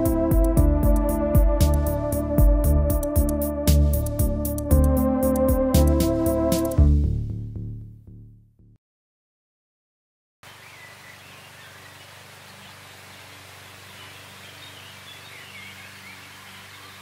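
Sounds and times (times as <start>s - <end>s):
faint bird chirps: 10.5s - 17.0s.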